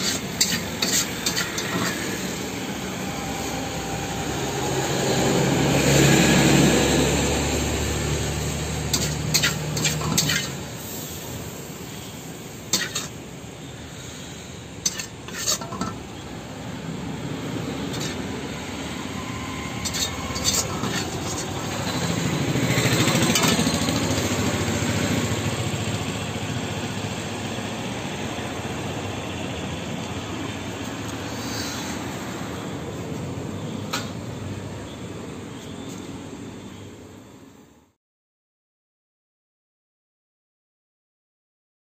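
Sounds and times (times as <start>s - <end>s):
metal spatula scraping wok: 0.0s - 3.5s, 8.1s - 24.6s.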